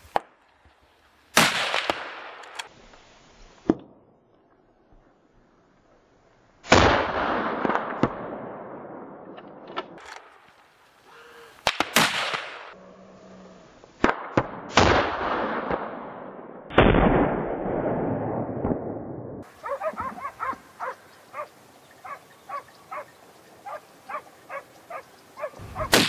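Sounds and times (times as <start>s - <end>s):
rifle shots with long echo: 1.3s - 2.6s, 6.7s - 9.4s, 11.6s - 12.8s, 14.0s - 21.0s, 25.5s - 26.0s.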